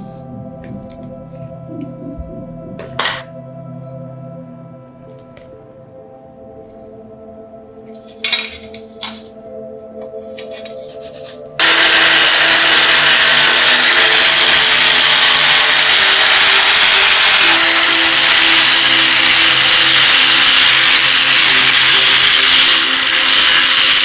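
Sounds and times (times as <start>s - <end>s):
electric sander grinding metal: 11.6s - 24.0s.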